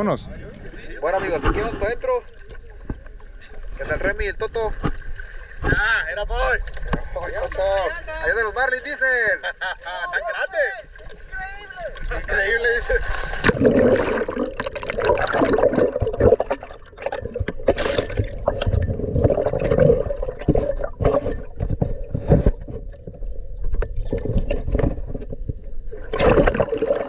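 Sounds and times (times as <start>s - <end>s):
sea water sloshing and splashing: 0.3s - 8.6s, 10.8s - 27.0s
water bubbling: 11.8s - 27.0s.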